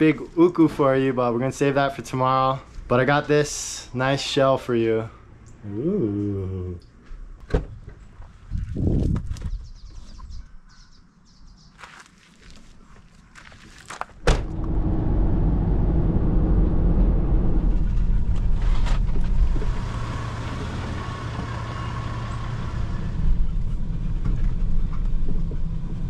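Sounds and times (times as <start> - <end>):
thump: 7.5 - 7.8, 14.2 - 14.9
engine and road rumble: 11.8 - 26.0.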